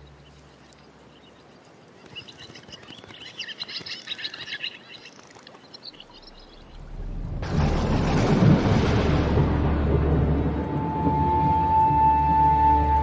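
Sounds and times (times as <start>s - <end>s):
birds chirping: 0.0s - 7.0s.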